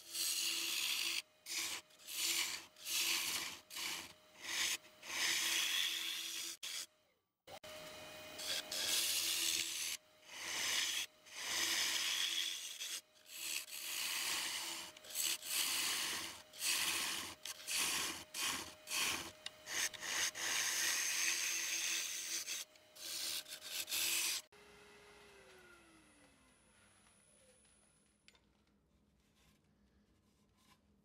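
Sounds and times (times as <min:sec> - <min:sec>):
gouge scraping wood on lathe: 0:00.0 - 0:06.9, 0:08.4 - 0:24.5.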